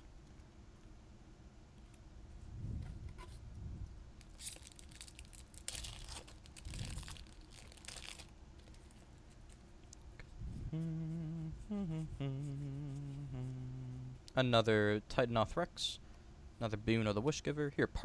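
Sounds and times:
foil wrapper tearing and crinkling: 0:04.2 - 0:09.0.

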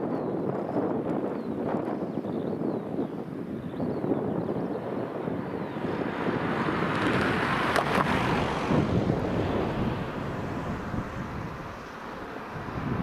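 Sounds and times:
wind rumble on microphone: 0:00.0 - 0:13.0
car passing close by: 0:05.5 - 0:13.0.

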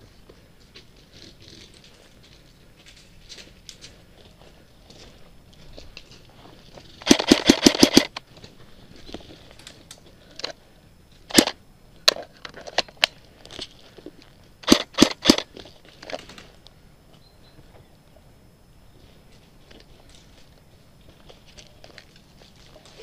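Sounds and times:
airsoft rifle firing: 0:07.0 - 0:08.2, 0:11.3 - 0:11.6, 0:14.6 - 0:15.5.

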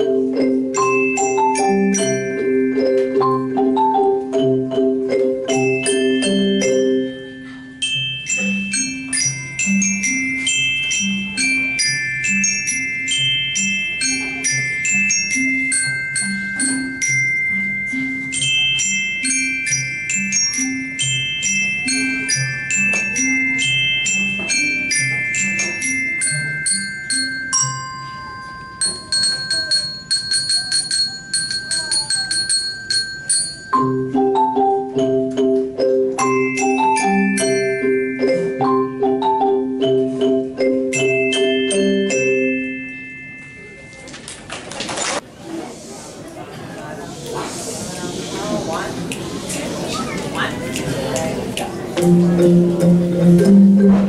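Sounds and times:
xylophone ensemble playing: 0:00.0 - 0:44.4, 0:51.9 - 0:54.0.

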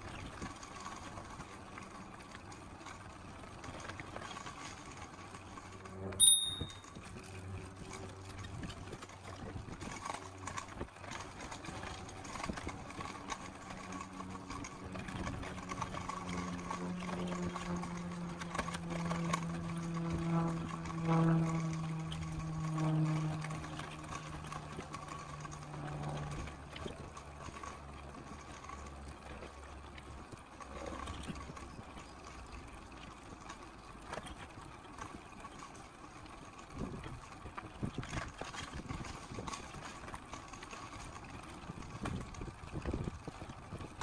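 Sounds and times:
motor hum dropping in pitch: 0:05.7 - 0:09.5, 0:10.3 - 0:33.4.

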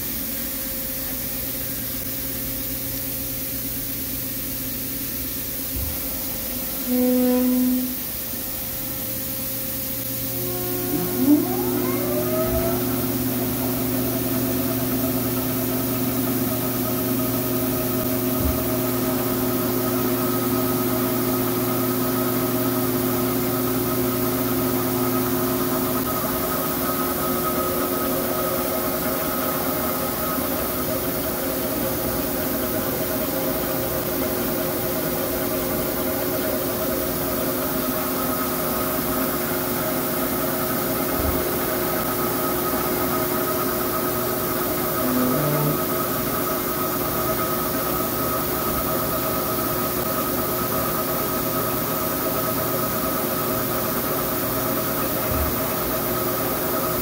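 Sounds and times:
lathe mechanical whine: 0:05.4 - 0:57.0
low hum: 0:10.0 - 0:17.4, 0:44.8 - 0:46.1.

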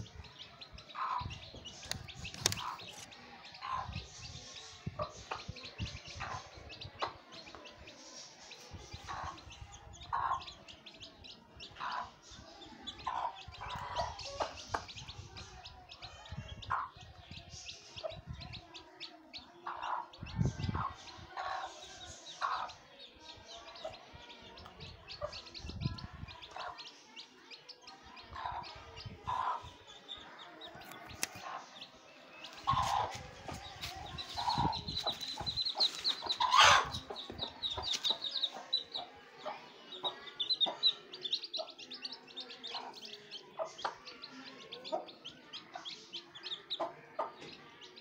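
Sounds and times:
chicks peeping: 0:00.0 - 0:48.0
hen clucking: 0:32.6 - 0:38.8.

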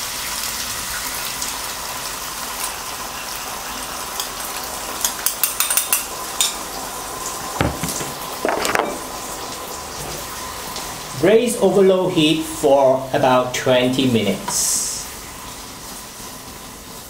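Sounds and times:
sauce sizzling in a pan: 0:00.0 - 0:07.6, 0:14.1 - 0:17.0
knocks: 0:07.6 - 0:09.0.

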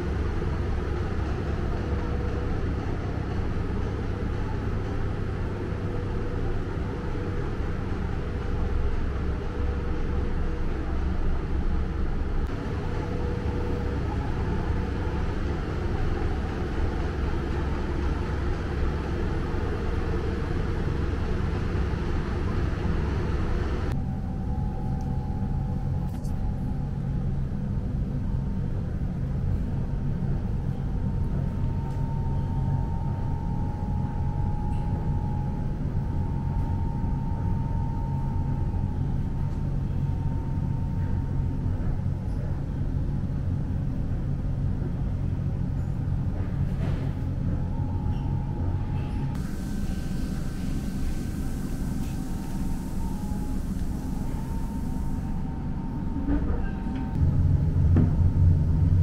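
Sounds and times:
faint steady tones: 0:28.8 - 0:44.4, 0:47.2 - 0:59.0
vehicle rumble: 0:46.3 - 0:59.0
hiss: 0:49.4 - 0:55.4.

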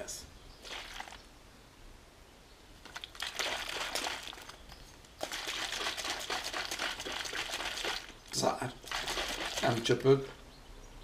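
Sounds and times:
plastic bottle crackling: 0:00.6 - 0:01.3, 0:02.8 - 0:10.4
water sloshing in bottle: 0:00.6 - 0:01.3, 0:02.8 - 0:10.4.

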